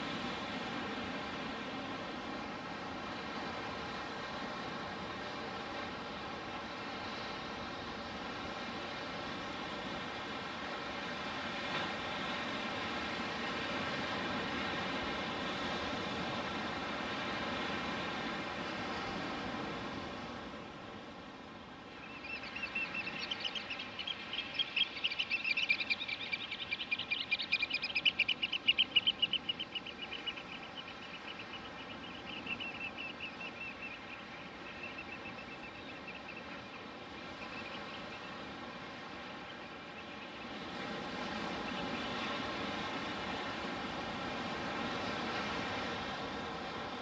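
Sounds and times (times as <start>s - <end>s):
bird trilling: 22.1s - 34.0s.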